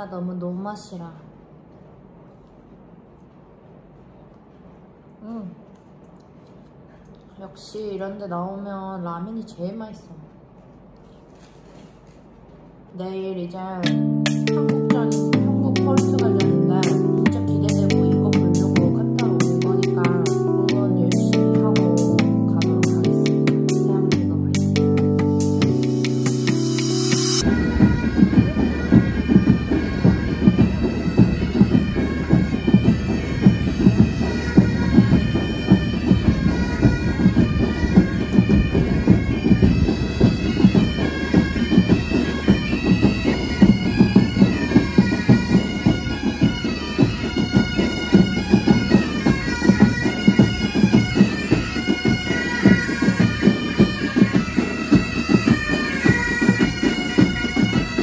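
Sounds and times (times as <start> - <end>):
marching drums: 13.8 - 58.0
bagpipes playing melody: 13.9 - 20.5, 21.1 - 58.0.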